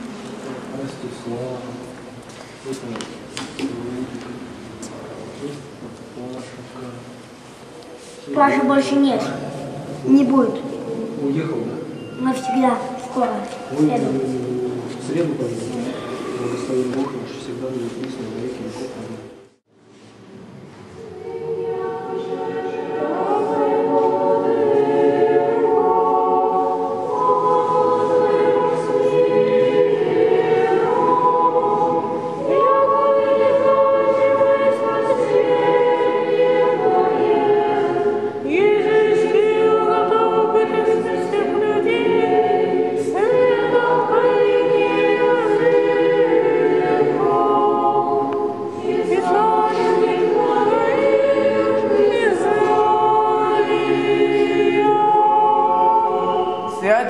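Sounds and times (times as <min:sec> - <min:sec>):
choir singing unaccompanied chant: 0:21.0 - 0:57.0.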